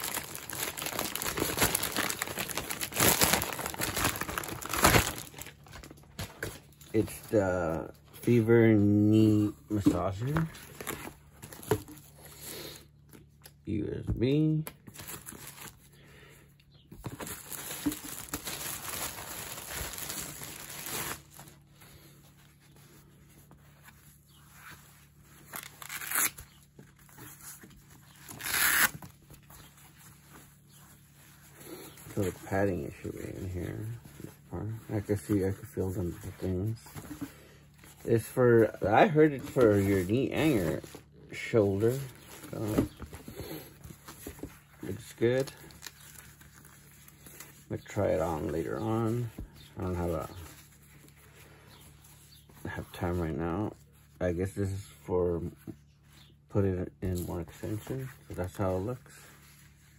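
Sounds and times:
plastic bag crinkling: 0:00.0 - 0:07.3, 0:17.2 - 0:21.7
tissue paper rustling: 0:00.0 - 0:07.4, 0:17.0 - 0:53.1.

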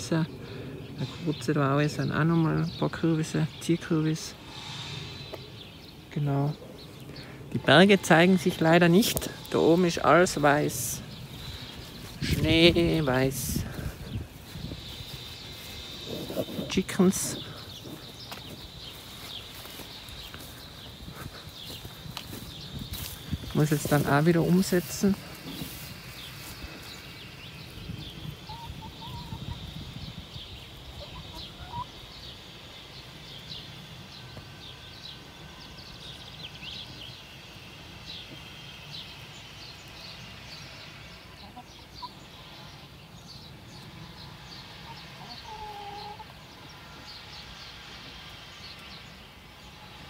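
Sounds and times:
hens clucking: 0:07.5 - 0:29.9, 0:30.9 - 0:32.1, 0:41.2 - 0:42.9, 0:44.2 - 0:47.0.

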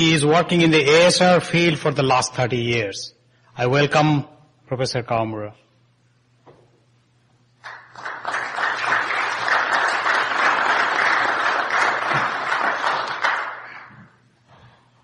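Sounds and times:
audience applauding: 0:07.6 - 0:14.1.

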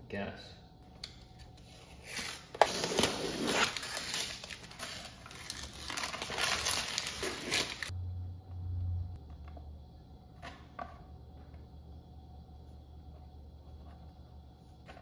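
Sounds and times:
paper backing peeling and crinkling: 0:01.6 - 0:07.9.

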